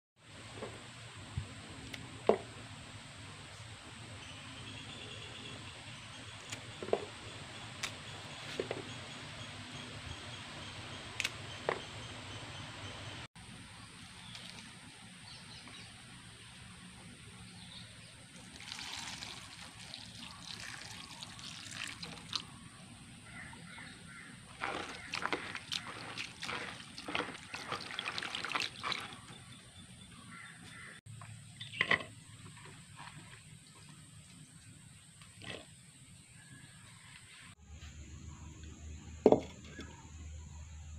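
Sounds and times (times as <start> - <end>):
outdoor background hiss: 0.2 - 6.7
water splashing in a basin: 18.3 - 22.6, 24.5 - 29.4.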